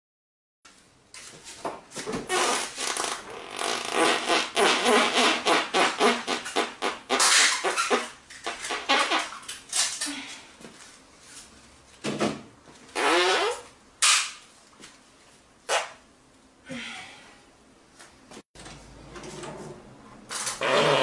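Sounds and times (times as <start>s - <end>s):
loud sputtering farts: 2.3s - 9.4s, 13.0s - 13.6s, 20.6s - 21.0s.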